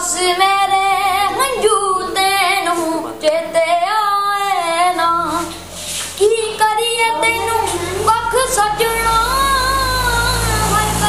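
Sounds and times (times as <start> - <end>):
boy singing unaccompanied: 0.0 - 11.0.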